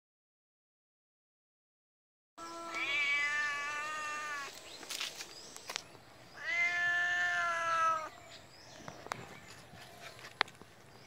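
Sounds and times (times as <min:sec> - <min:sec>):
cat meowing: 0:02.4 - 0:04.5, 0:06.4 - 0:08.1.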